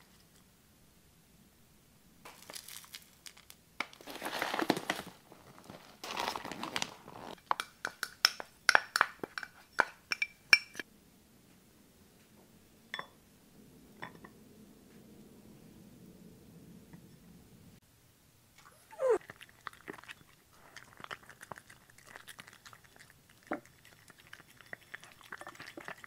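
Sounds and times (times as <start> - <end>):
plastic bag crinkling: 2.3 - 7.4
clinks on a ceramic bowl: 7.6 - 10.8, 12.9 - 13.2.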